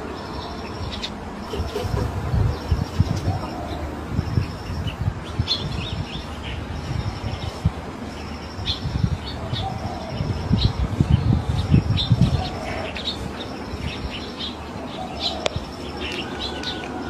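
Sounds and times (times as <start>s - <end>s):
small birds chirping: 0.0s - 17.0s
low rumble on microphone: 1.4s - 14.3s.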